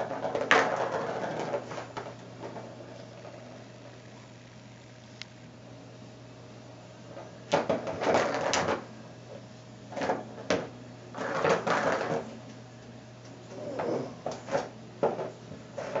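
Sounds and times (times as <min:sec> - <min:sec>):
ball clattering in plastic track: 0:00.0 - 0:02.7, 0:07.5 - 0:08.8, 0:10.0 - 0:12.3.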